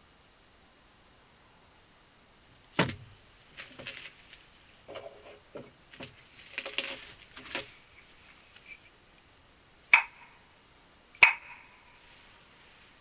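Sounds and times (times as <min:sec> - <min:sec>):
sharp knocks with ringing: 0:09.9 - 0:10.4, 0:11.2 - 0:11.8.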